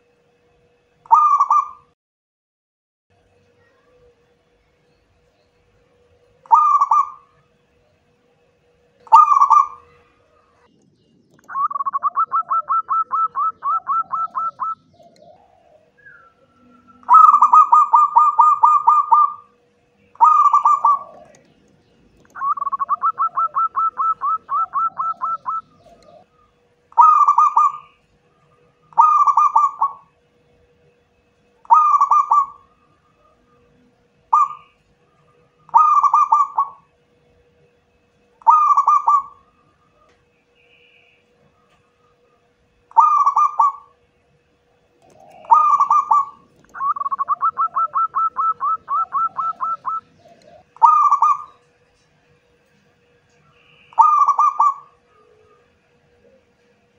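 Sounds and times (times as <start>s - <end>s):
dove cooing: 1.1s - 1.9s, 6.0s - 8.0s, 8.6s - 10.7s, 11.4s - 30.2s, 31.6s - 37.0s, 38.4s - 40.2s, 40.8s - 44.0s, 44.8s - 52.1s, 53.4s - 56.9s.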